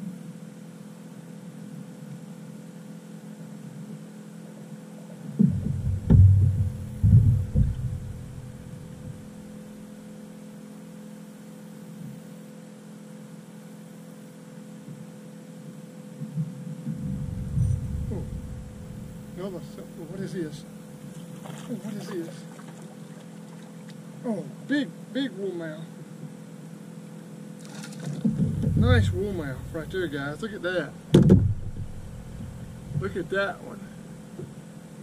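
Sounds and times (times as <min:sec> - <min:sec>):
aquarium air pump humming: 0:02.5 - 0:14.7, 0:16.8 - 0:25.8, 0:26.5 - 0:35.0
loud low thumps: 0:05.4 - 0:09.7, 0:16.8 - 0:21.0, 0:28.2 - 0:33.4.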